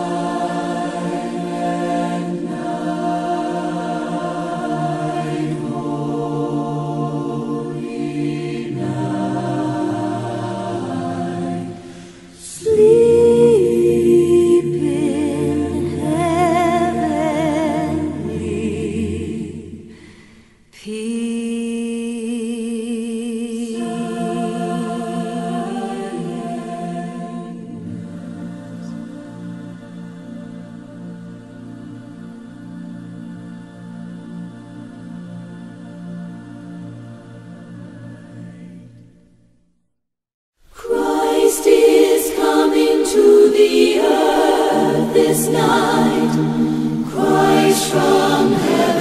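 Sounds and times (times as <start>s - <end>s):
unaccompanied choir singing: 0.0s - 39.2s, 40.7s - 49.0s.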